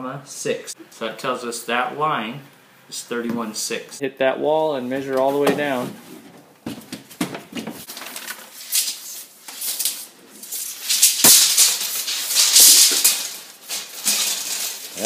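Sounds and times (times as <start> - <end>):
tape measure blade rattling: 8.7 - 15.0.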